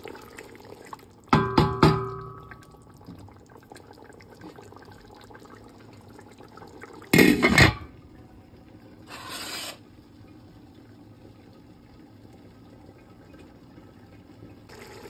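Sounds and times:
faint bubbling in a pot: 0.0 - 15.0
glass lid clattering onto pot: 7.2 - 7.9
wooden spatula scraping: 9.1 - 9.8.

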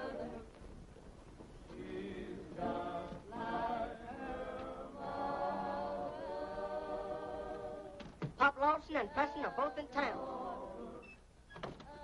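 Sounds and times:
choir singing long notes: 0.0 - 0.5, 1.7 - 8.1, 9.0 - 11.2.

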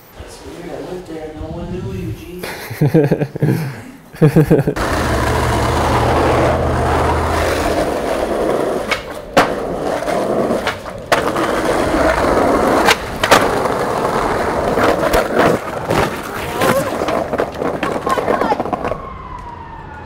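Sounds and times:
skateboard wheels rolling on pavement: 0.0 - 3.5, 4.2 - 20.0
skateboard clacking on ground: 6.8 - 19.0.

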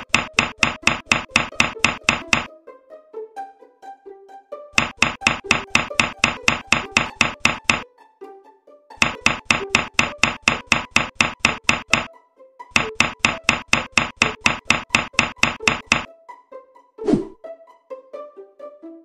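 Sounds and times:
rapid even knocking: 0.0 - 2.5, 4.8 - 7.8, 9.0 - 12.1, 12.7 - 16.1.

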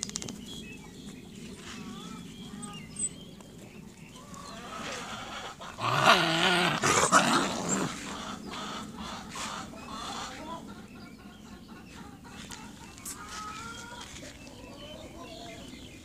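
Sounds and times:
dogs growling and snarling: 4.4 - 9.4.

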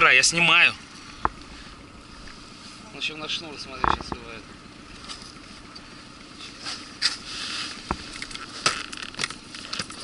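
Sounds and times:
knocks and scrapes in boat: 3.6 - 5.7, 6.3 - 10.0.

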